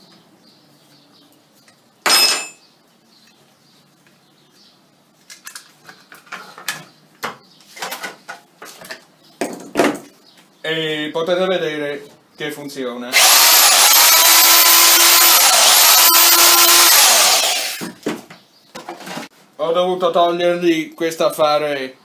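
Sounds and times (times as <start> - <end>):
loud metallic clank: 2.1 - 2.6.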